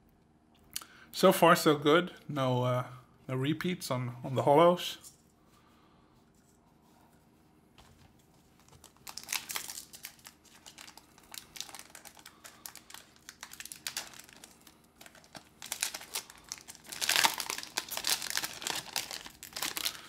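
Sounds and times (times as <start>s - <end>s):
wrapper crinkling and tearing: 8.6s - 20.0s.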